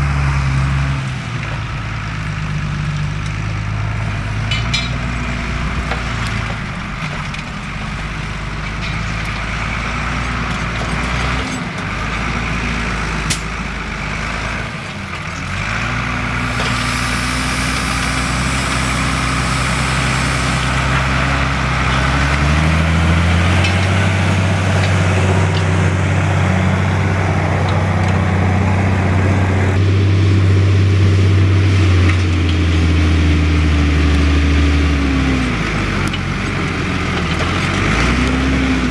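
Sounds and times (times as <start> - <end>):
tractor diesel engine under load: 0.0 - 38.9
hiss: 16.5 - 20.7.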